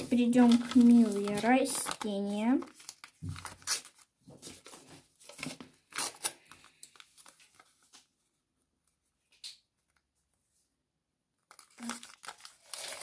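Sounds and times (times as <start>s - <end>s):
paper tearing and rustling: 0.0s - 8.0s, 11.5s - 13.0s.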